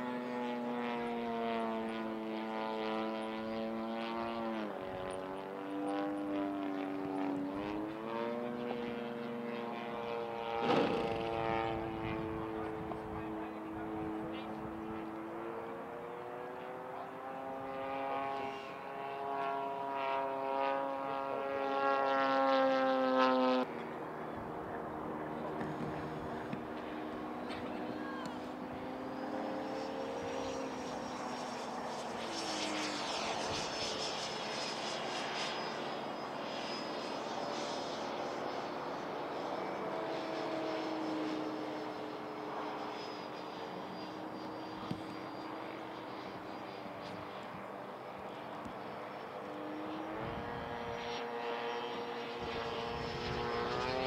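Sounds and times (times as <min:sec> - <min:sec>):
model jet fan whining: 0:16.9 - 0:54.0.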